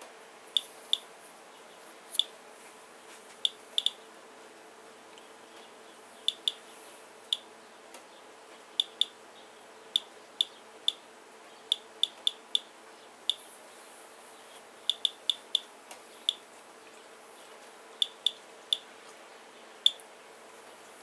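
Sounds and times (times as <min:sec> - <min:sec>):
geiger counter clicking: 0:03.4 - 0:04.0, 0:06.3 - 0:06.6, 0:08.8 - 0:09.2, 0:11.7 - 0:12.7, 0:14.9 - 0:15.7, 0:18.0 - 0:18.8.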